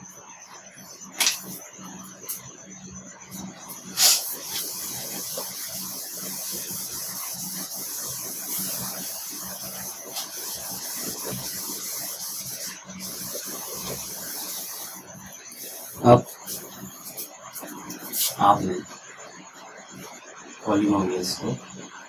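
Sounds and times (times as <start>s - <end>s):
eraser scrubbing whiteboard: 0.5s - 2.4s, 3.2s - 18.8s.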